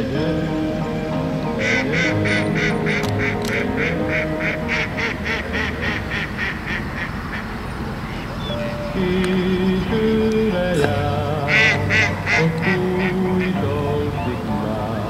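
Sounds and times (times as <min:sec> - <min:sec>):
soft background music: 0:00.0 - 0:15.0
duck quacking: 0:01.6 - 0:09.9, 0:10.6 - 0:14.3.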